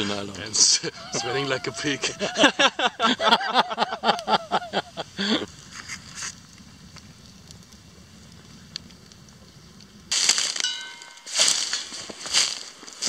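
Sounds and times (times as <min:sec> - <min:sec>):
loud crunching rustling noise: 0:05.2 - 0:13.0.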